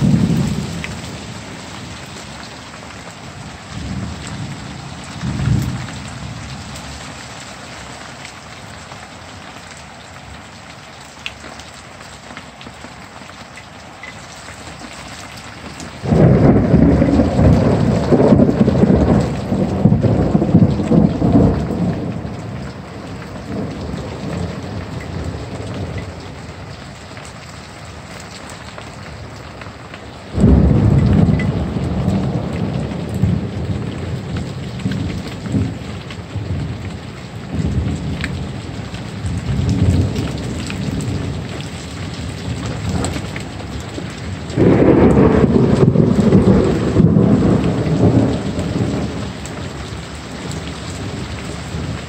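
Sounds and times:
thunder rumbling: 0.0s - 8.0s, 15.6s - 27.4s, 30.3s - 52.0s
heavy rain: 0.0s - 52.0s.

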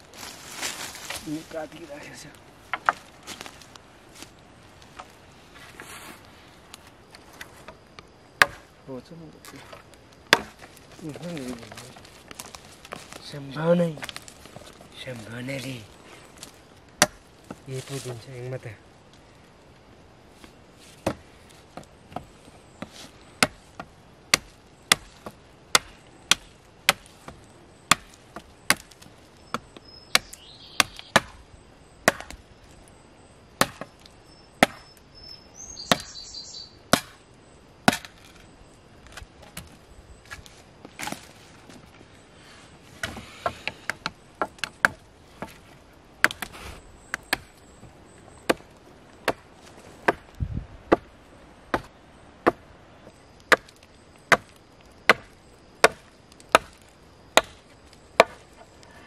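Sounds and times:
knife chopping dry branches: 8.4s - 8.7s, 9.5s - 14.8s, 16.4s - 18.2s, 20.9s - 31.4s, 32.0s - 32.4s, 33.6s - 35.0s, 35.8s - 36.2s, 36.9s - 37.2s, 37.8s - 38.4s, 42.9s - 45.6s, 48.4s - 51.1s, 51.7s - 52.6s, 53.4s - 58.7s.

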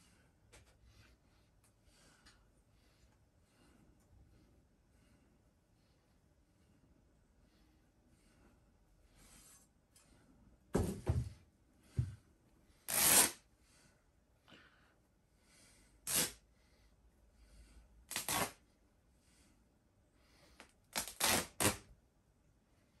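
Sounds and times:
stuffed toy fabric ripping: 12.9s - 13.4s, 16.1s - 16.4s, 18.1s - 18.6s, 20.9s - 21.9s.

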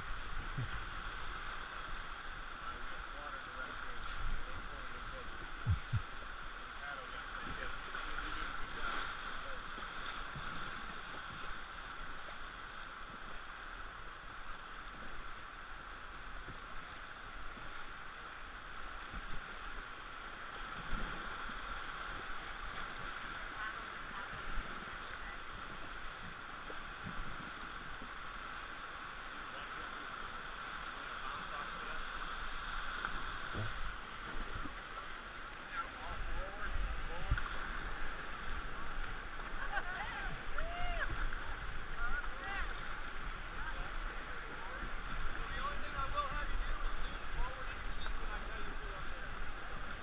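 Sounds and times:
whitewater rushing: 0.0s - 50.0s
low thumps: 5.6s - 6.2s.

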